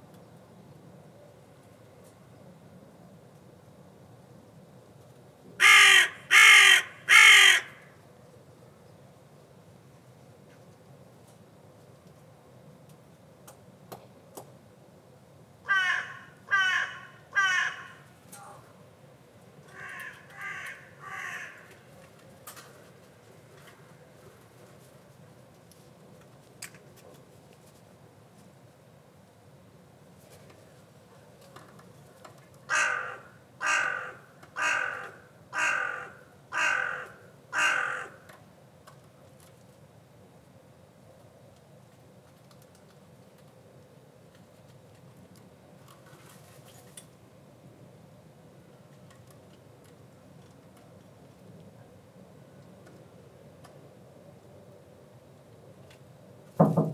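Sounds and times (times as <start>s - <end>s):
crow cawing: 5.6s - 7.9s, 15.7s - 18.1s, 19.7s - 21.8s, 32.7s - 38.3s.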